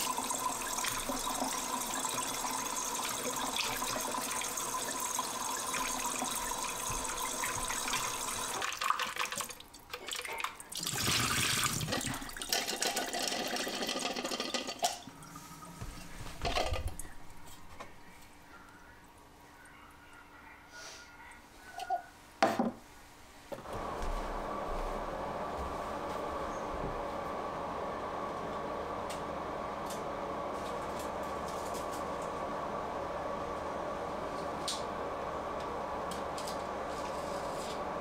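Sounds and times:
tap water running into tank: 0:00.0 - 0:15.1.

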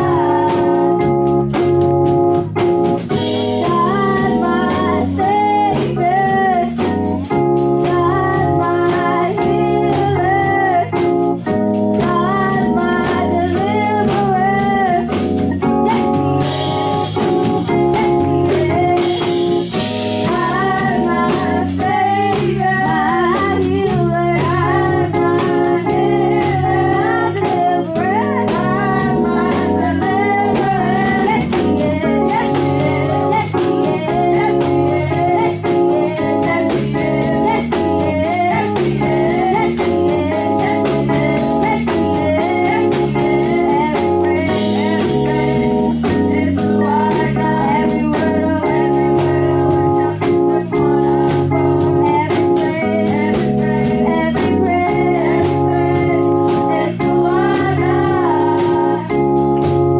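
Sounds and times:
girls singing gospel song: 0:00.0 - 0:01.2, 0:03.2 - 0:07.1, 0:07.8 - 0:11.1, 0:12.0 - 0:59.7
instrumental backing with beat: 0:00.0 - 0:59.9.

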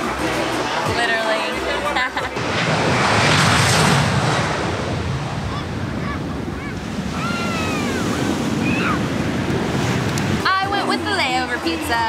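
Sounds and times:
surf rushing: 0:00.0 - 0:12.0
wind on microphone: 0:02.7 - 0:12.0.

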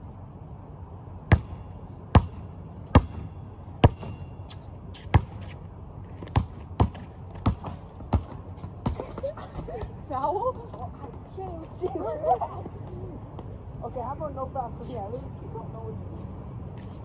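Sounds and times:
basketball bouncing on concrete: 0:01.3 - 0:04.3, 0:04.9 - 0:05.6, 0:06.2 - 0:10.0.

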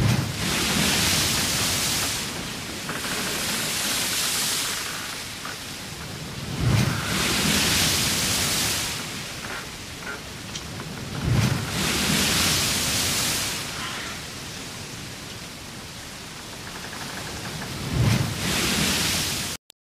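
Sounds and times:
sea water rushing along hull: 0:00.0 - 0:19.6.

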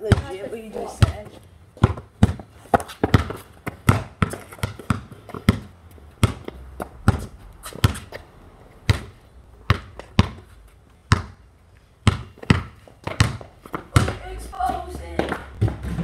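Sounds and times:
basketball bouncing on hard ground: 0:00.0 - 0:16.0.

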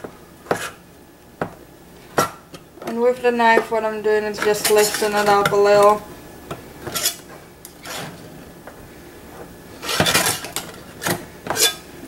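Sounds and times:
knife scraping metal tin lid: 0:06.9 - 0:07.2, 0:07.8 - 0:08.2, 0:09.8 - 0:10.6, 0:11.5 - 0:11.8.

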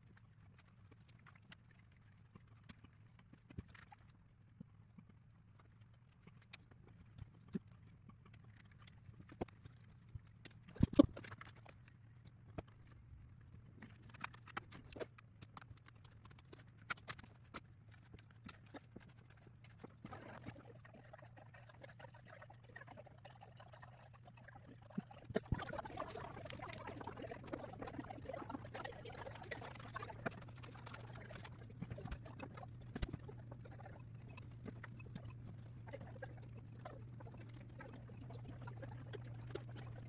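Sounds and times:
faint low hum: 0:00.0 - 0:40.0
small wooden parts clicking: 0:05.0 - 0:20.5.

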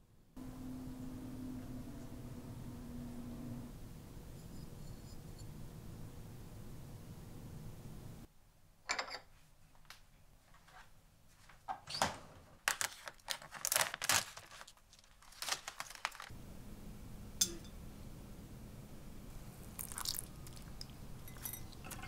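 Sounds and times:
plastic film crinkling and tearing: 0:12.6 - 0:16.3.

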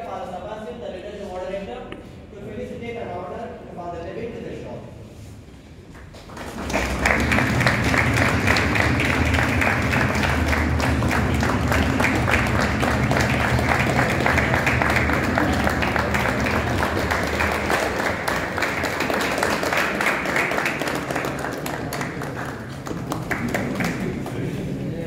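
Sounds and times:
crowd clapping: 0:05.8 - 0:25.0.

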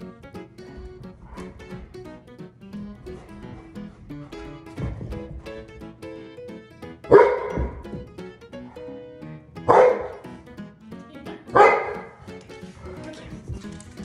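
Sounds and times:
large dog barking: 0:07.0 - 0:08.0, 0:09.6 - 0:10.3, 0:11.5 - 0:12.2.

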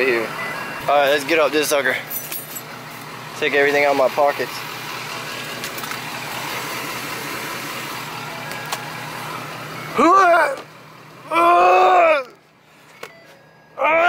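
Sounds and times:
diesel engine idling: 0:00.0 - 0:14.0
man groaning with effort: 0:11.2 - 0:12.4, 0:13.8 - 0:14.0.

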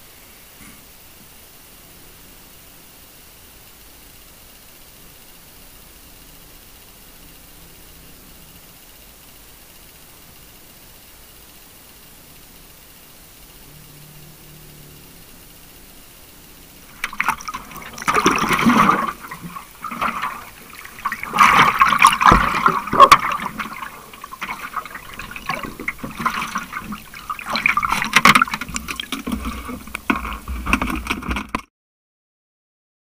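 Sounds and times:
water bubbling underwater: 0:16.8 - 0:31.3.

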